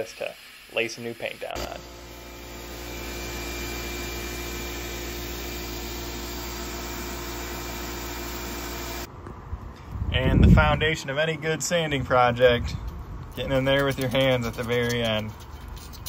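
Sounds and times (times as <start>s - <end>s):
sandblasting gun hissing: 0.0s - 9.1s
steady machine hum: 1.6s - 9.1s.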